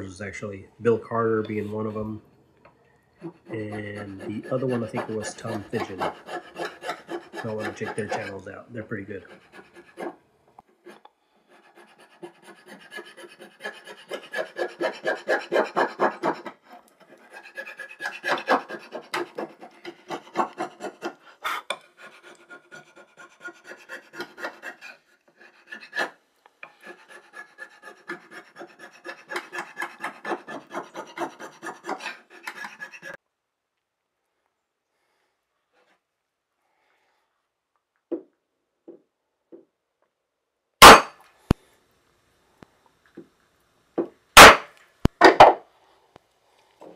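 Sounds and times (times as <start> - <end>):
chisel scraping wood: 3.2 - 10.2, 10.8 - 33.2.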